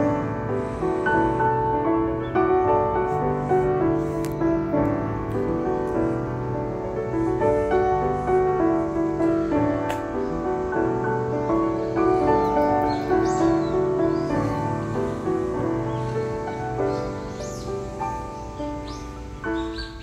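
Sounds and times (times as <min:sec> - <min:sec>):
slow piano music: 0:00.0 - 0:20.0.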